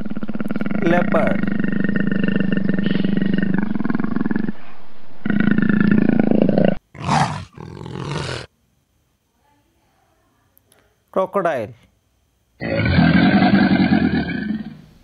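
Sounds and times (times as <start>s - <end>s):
leopard growling: 0.0s - 8.5s.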